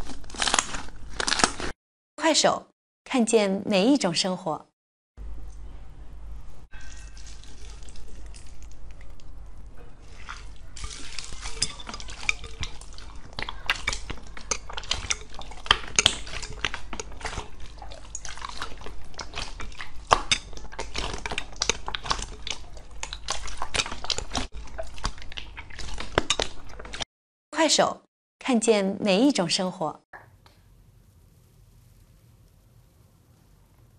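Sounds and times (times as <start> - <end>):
slime squelching: 6.7 - 27.0.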